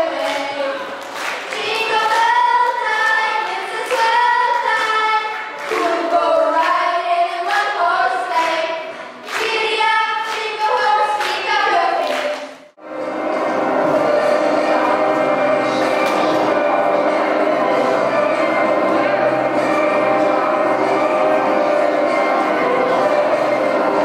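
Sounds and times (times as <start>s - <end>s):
girls singing through pa: 0.0s - 12.6s
hand claps: 15.8s - 16.4s.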